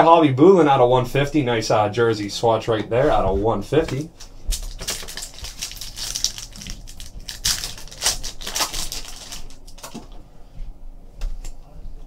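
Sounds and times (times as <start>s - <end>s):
foil wrapper crinkling: 4.5s - 10.0s.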